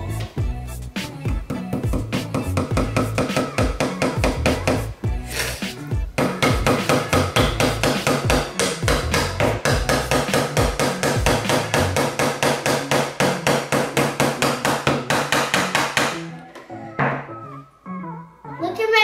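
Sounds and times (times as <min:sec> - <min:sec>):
hammer tapping nails into wood: 0:01.5 - 0:04.8, 0:06.2 - 0:16.2.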